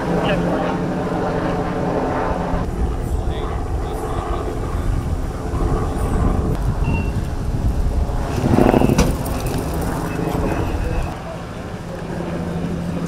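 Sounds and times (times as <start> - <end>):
helicopter drone overhead: 0.0 - 13.0.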